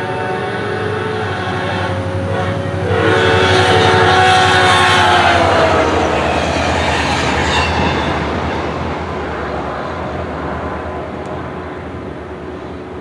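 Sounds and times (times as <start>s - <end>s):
train horn: 0.0s - 9.2s
train rumble: 0.0s - 13.0s.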